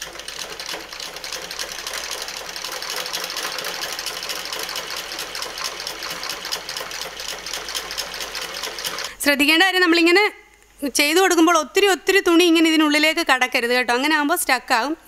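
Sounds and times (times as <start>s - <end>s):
sewing machine clattering: 0.0s - 9.1s.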